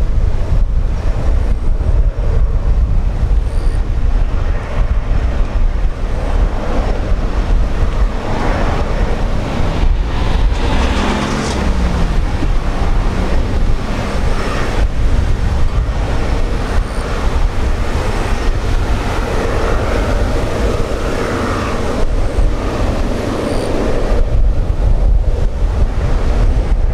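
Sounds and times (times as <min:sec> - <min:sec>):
jet engine roar: 0:00.0 - 0:26.9.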